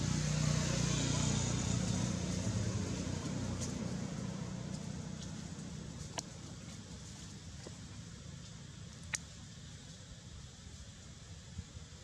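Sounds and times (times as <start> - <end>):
vehicle engine low hum: 0.0 - 12.0.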